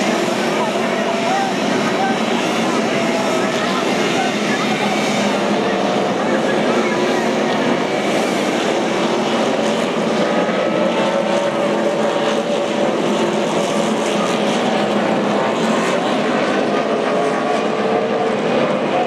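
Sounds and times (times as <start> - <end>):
race car engines droning: 0.0 - 19.0.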